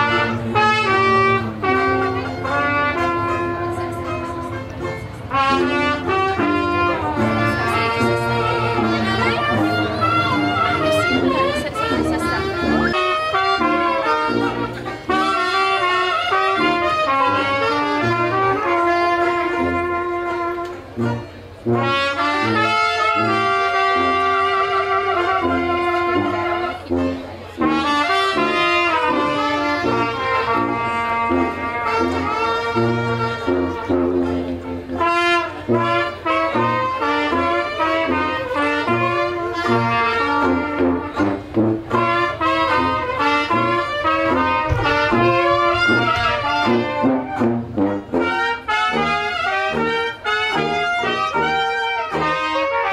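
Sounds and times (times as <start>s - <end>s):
walking bass line: 0.0s - 52.6s
brass melody: 0.0s - 52.9s
jazz band playing: 0.0s - 52.9s.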